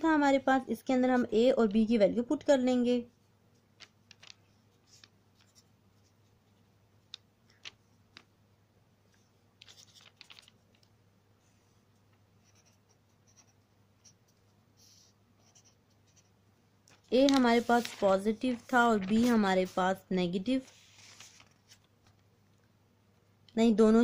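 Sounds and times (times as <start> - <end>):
ballpoint pen scratching on paper: 12.4 - 16.3.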